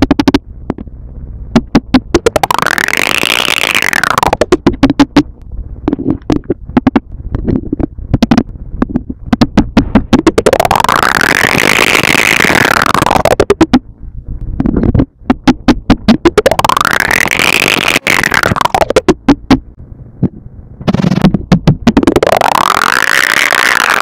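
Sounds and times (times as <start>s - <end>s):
electronic synthesizer music: 1.6s - 5.3s, 9.4s - 13.8s, 15.4s - 19.6s.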